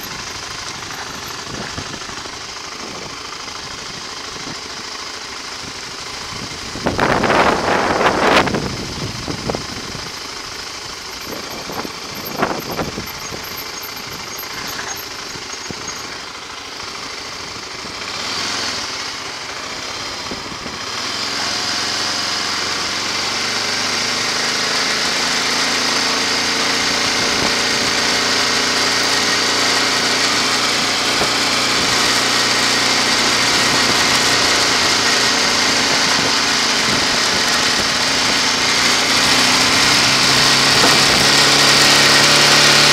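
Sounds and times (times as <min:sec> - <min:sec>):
wind noise: 0:00.0 - 0:02.1, 0:06.3 - 0:10.3, 0:11.0 - 0:16.2, 0:33.2 - 0:42.5
road noise: 0:00.0 - 0:42.9
vehicle engine running: 0:00.0 - 0:42.9.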